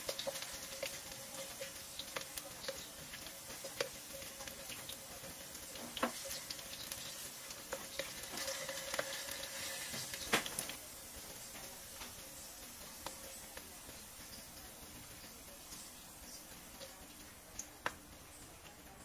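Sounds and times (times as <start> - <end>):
wooden spatula tapping and scraping: 0.0 - 10.7
potatoes sizzling in oil: 0.0 - 19.0.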